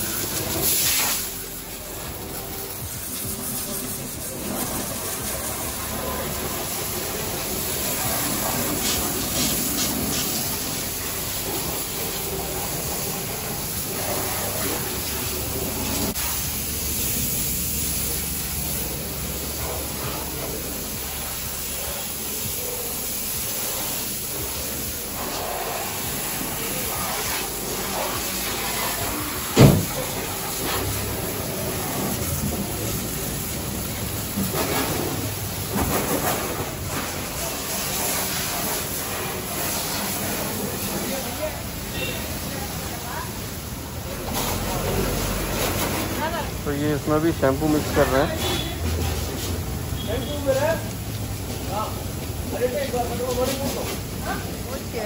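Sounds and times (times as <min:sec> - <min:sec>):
water spray hissing: 0:00.0 - 0:55.0
sharp knock: 0:29.6 - 0:29.9.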